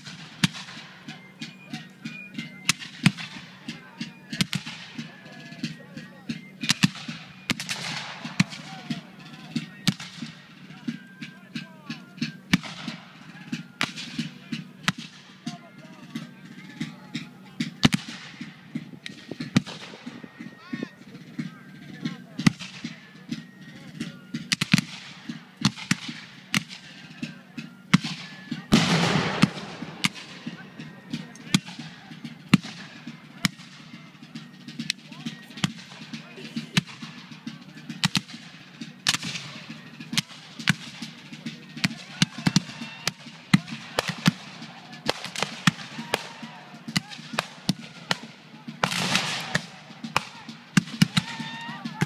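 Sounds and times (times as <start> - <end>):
faint gunfire pops: 28.0 - 30.5, 47.0 - 51.2
musket shots crackling: 28.0 - 30.6, 43.5 - 51.2
gunshots: 28.7 - 30.6, 47.0 - 51.2.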